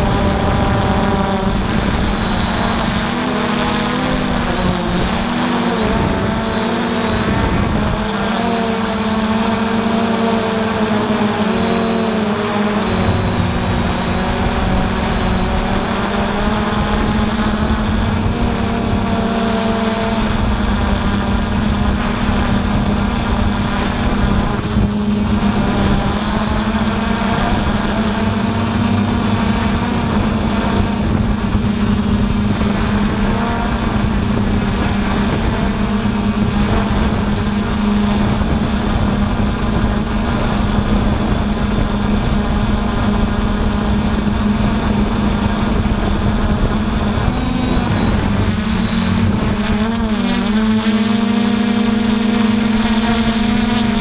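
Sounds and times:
drone motors buzzing: 0:00.0 - 0:54.0.

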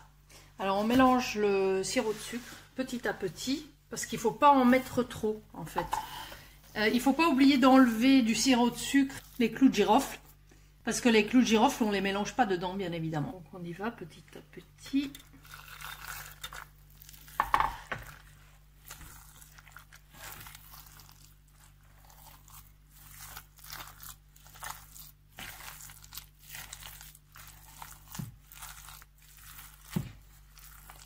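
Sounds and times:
hand squeezing wet filling: 0:07.6 - 0:10.4, 0:15.1 - 0:31.0.

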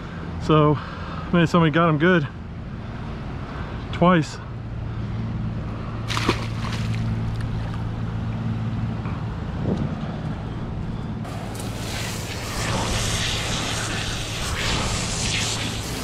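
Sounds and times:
fish splashing into sea: 0:06.0 - 0:07.8
hand sweeping through water: 0:06.1 - 0:07.4.

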